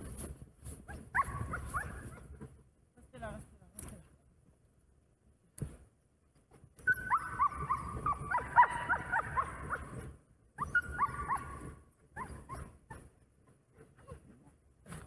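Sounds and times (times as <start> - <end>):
dogs whining and yipping: 0.9 - 2.4, 6.8 - 14.4.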